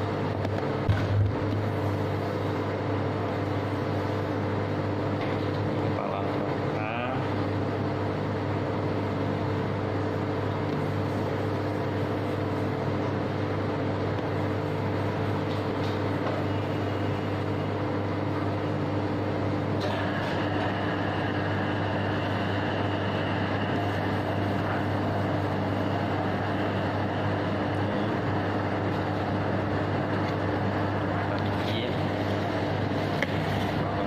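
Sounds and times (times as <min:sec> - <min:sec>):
low machinery hum: 0:00.0 - 0:34.0
high-pitched whine: 0:19.8 - 0:34.0.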